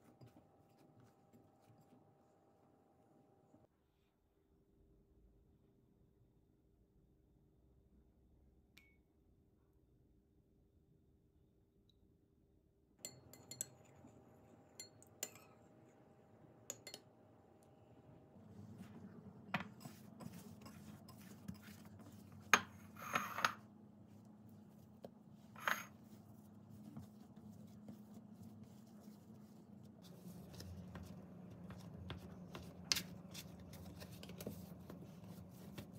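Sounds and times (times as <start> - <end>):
hands kneading dough: 18.4 - 23.0, 23.6 - 35.9.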